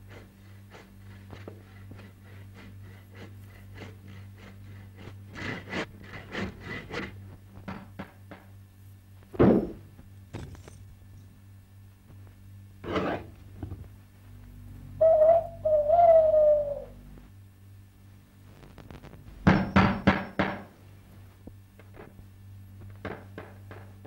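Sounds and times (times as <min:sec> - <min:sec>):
hooting bird call: 0:14.9 - 0:17.2.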